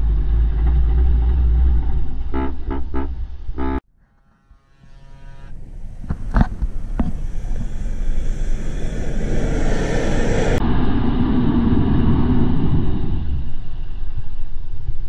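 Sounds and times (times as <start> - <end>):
pickup truck engine: 0.0 - 3.8.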